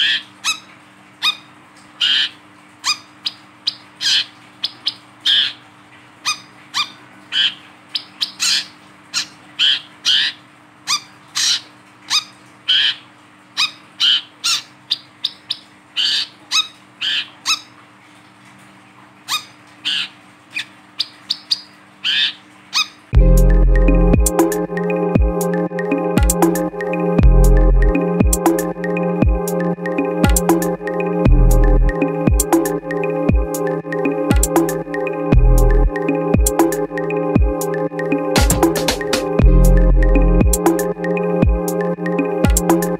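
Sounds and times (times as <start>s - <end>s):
electronic music: 23.2s - 42.9s.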